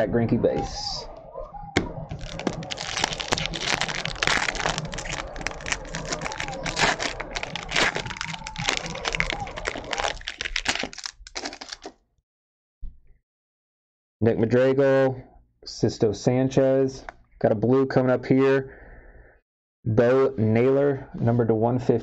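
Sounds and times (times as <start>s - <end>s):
foil wrapper crinkling: 1.8s - 11.9s.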